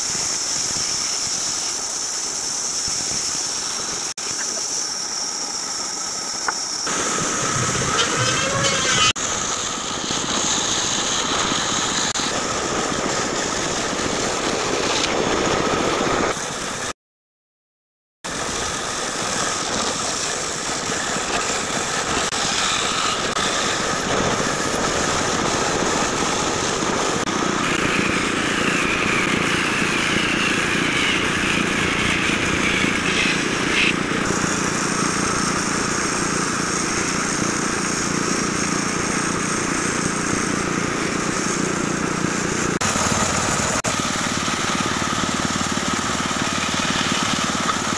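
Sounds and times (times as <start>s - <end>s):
bandsaw cutting through wood: 6.8s - 12.4s, 18.5s - 39.4s, 40.0s - 47.9s.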